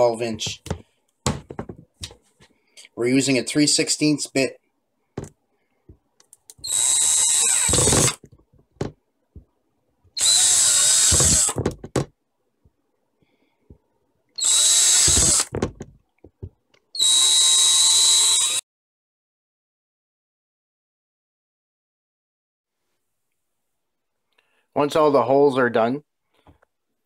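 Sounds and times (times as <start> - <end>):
cordless drill boring plastic: 6.5 - 8.9, 10.2 - 12.0, 14.4 - 15.9, 17.0 - 18.6.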